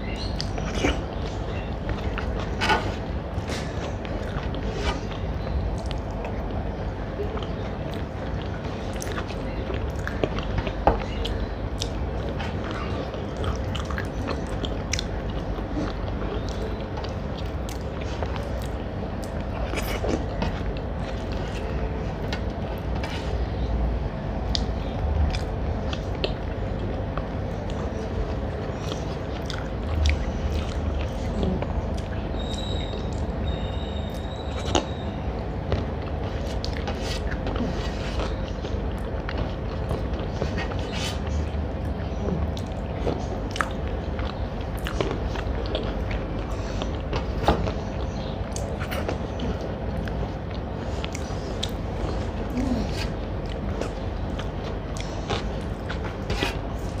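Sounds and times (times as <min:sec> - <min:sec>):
person chewing food: 0:00.0 - 0:23.7, 0:24.4 - 0:57.0
steady low hum: 0:00.0 - 0:57.0.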